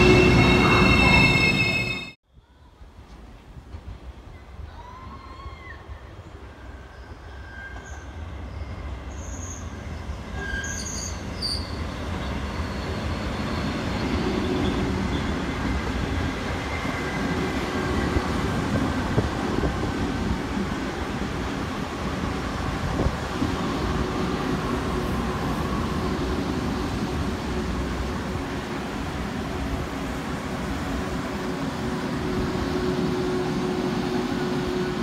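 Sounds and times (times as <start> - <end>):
electric train passing: 0.0 - 2.2, 11.2 - 35.0.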